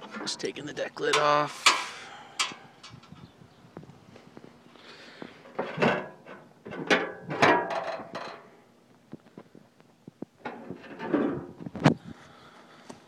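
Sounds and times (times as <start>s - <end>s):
metal clanks and scrapes: 0.0s - 0.5s, 5.4s - 8.5s, 10.4s - 11.6s.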